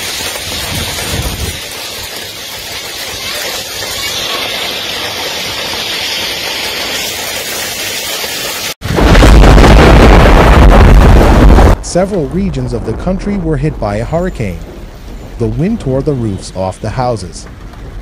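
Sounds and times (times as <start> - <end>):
heavy rain pouring: 0.0 - 18.0
wind buffeting rumble: 0.2 - 4.0, 8.8 - 18.0.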